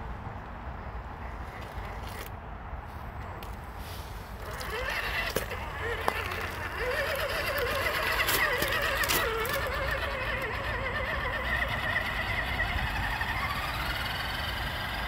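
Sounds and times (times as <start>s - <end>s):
electric motor whining: 4.4s - 15.0s.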